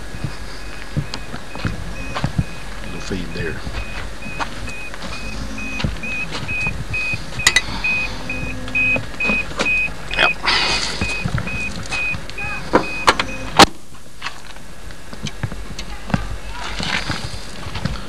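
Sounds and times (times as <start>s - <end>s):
warning chime beeping: 0.0s - 13.6s
clunks and rustling: 3.6s - 18.0s.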